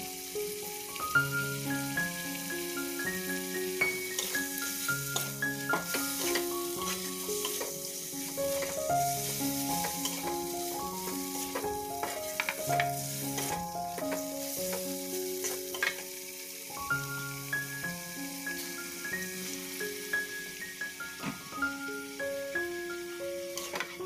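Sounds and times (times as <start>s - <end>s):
food sizzling in oil in a wok: 0.0s - 24.0s
soft background music: 0.0s - 24.0s
metal spatula scraping wok: 4.1s - 14.8s, 15.4s - 16.1s, 23.5s - 24.0s.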